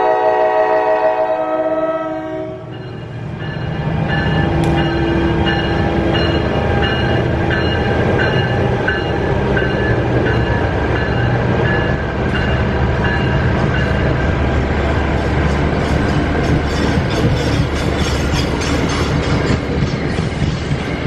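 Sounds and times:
diesel locomotive passing: 0:00.0 - 0:21.0
crossing bell ringing: 0:02.5 - 0:19.9
wheels clicking over rail joints: 0:15.0 - 0:21.0.

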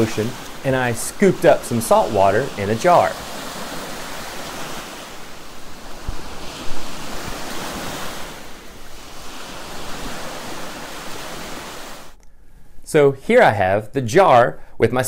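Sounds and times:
wind buffeting microphone: 0:00.0 - 0:12.0
waves washing on shore: 0:00.0 - 0:12.2.

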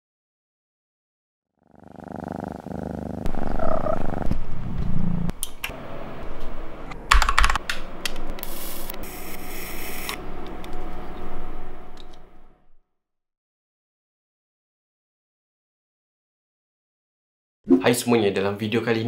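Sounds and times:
keyboard typing taps: 0:07.1 - 0:07.8
lighter hissing: 0:08.4 - 0:10.2.

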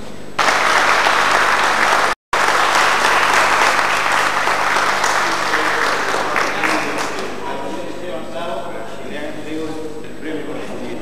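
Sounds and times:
audience applauding: 0:00.4 - 0:07.4.

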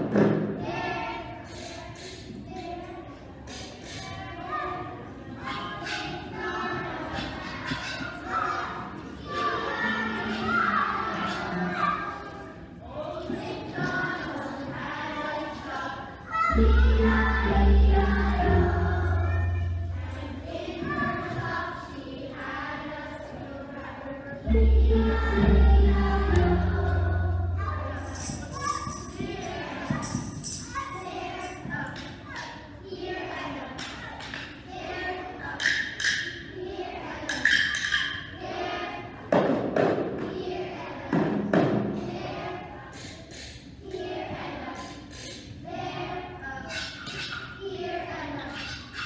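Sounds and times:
children's choir singing: 0:00.0 - 0:49.0
percussion thumps: 0:24.5 - 0:32.2, 0:41.1 - 0:42.1.

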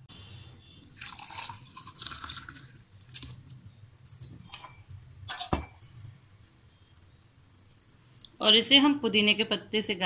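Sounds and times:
liquid pouring into a clay glass: 0:00.8 - 0:03.5.

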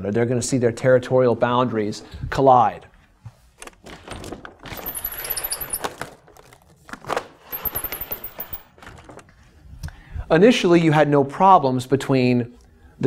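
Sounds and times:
papery rustling of wall map: 0:03.0 - 0:07.9
spring roller rattles and clicks: 0:07.5 - 0:09.2.

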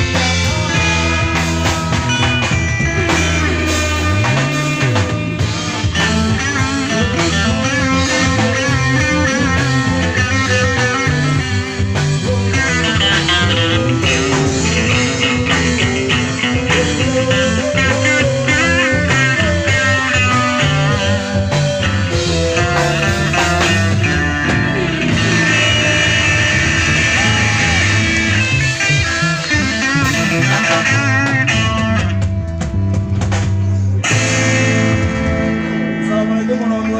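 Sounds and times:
lead electric guitar bent notes: 0:00.0 - 0:36.9
rock band playing live: 0:00.0 - 0:36.9.

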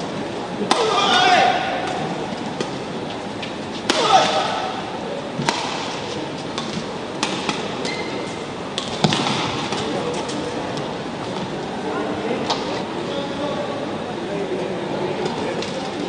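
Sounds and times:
indoor hall hum: 0:00.0 - 0:16.0
racket striking shuttlecock: 0:00.6 - 0:02.8, 0:03.8 - 0:04.8, 0:05.4 - 0:08.0.

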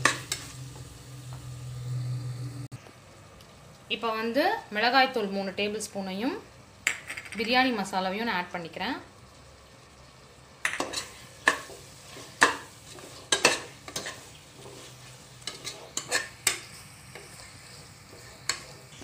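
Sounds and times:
faint sizzle of frying: 0:00.0 - 0:19.0.

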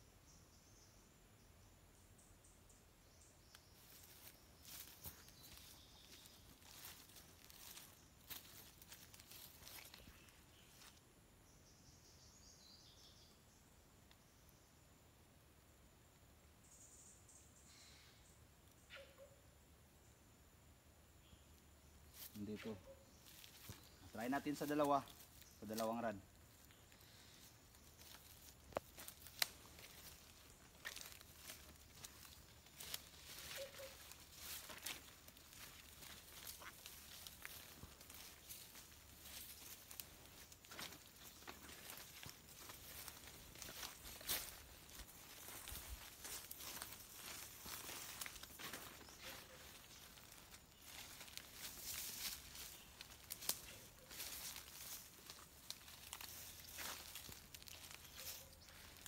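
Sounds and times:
footsteps crunching through dry leaves: 0:03.6 - 0:11.0, 0:22.1 - 0:59.0
twigs snapping: 0:28.0 - 0:45.6, 0:50.9 - 0:59.0.

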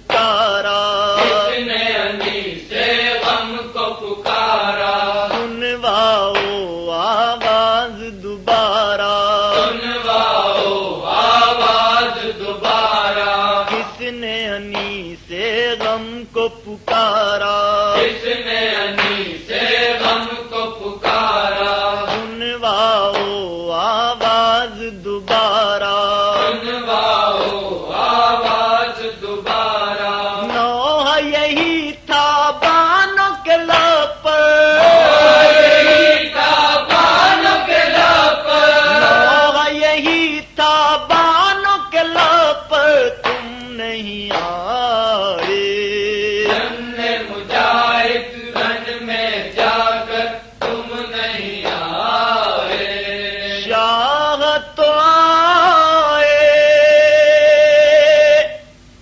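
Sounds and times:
male voices chanting a lament: 0:00.1 - 0:58.6
person chanting a lament: 0:38.2 - 0:41.1.

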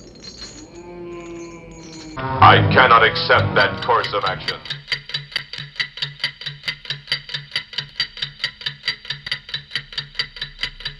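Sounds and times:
clock ticking: 0:02.2 - 0:10.9.

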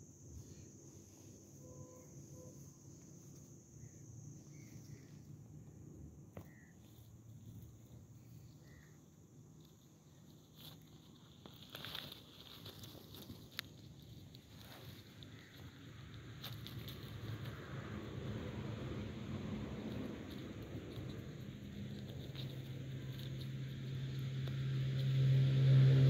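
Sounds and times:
insect trill: 0:00.0 - 0:26.0
soft chirps: 0:00.3 - 0:10.4.

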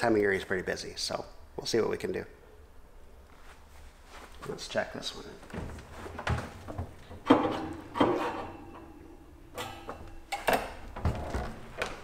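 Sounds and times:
knocks and clatters: 0:05.5 - 0:08.9.

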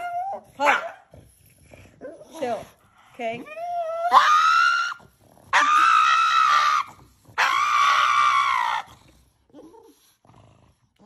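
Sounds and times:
dog screaming: 0:04.0 - 0:08.9.

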